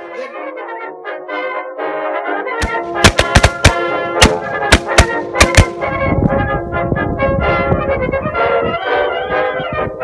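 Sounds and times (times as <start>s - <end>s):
brass music: 0.0s - 10.0s
sharp hits: 2.6s - 5.9s.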